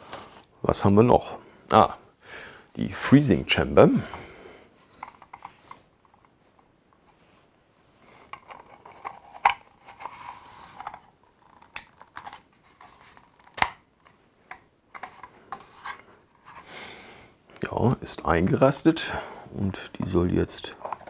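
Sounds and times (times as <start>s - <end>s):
plastic parts clicking and rubbing: 4.8s - 16.7s, 20.0s - 21.0s
plastic piece snapping into place: 13.4s - 13.8s.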